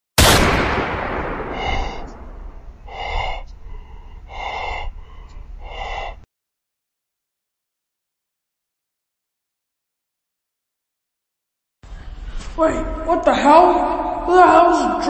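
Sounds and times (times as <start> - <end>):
loud crash: 0.2 - 2.7
heavy breathing: 1.4 - 6.3.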